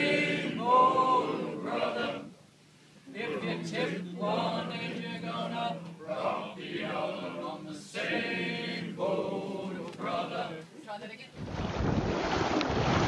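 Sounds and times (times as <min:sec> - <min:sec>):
male voices singing together: 0:00.0 - 0:02.4, 0:03.1 - 0:10.7.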